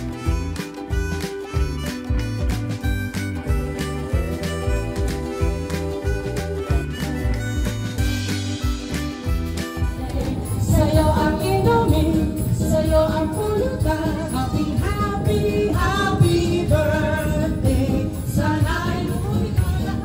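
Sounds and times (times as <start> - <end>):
backing music: 0.0 - 20.0
woman singing into a microphone: 10.0 - 20.0.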